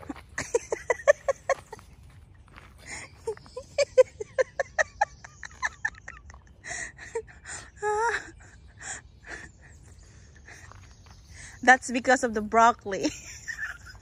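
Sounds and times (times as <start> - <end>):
person laughing: 0.0 - 1.9, 2.9 - 9.8, 13.0 - 14.0.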